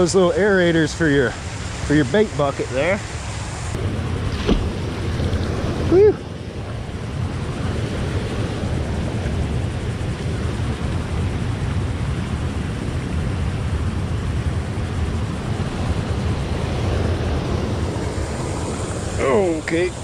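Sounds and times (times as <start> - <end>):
wind rumbling on microphone: 0.0 - 20.0
waterfall rushing: 0.3 - 3.8, 17.0 - 20.0.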